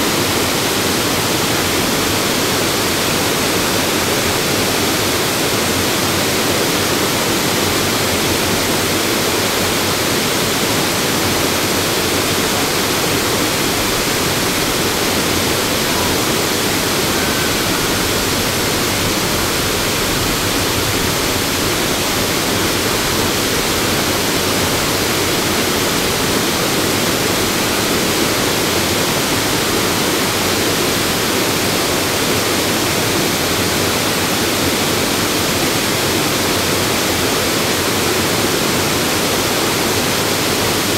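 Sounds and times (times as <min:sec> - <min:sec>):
waterfall rushing roar: 0:00.0 - 0:40.9.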